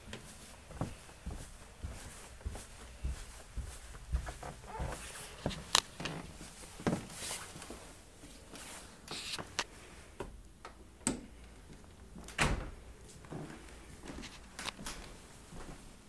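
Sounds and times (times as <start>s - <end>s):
footsteps on hardwood floor: 0.0s - 8.6s, 13.2s - 15.9s
floor creaking: 0.8s - 7.4s.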